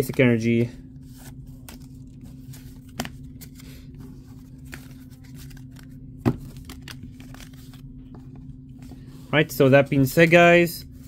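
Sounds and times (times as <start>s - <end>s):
trading cards shuffled: 0.0s - 9.1s
steady low hum: 0.0s - 11.0s.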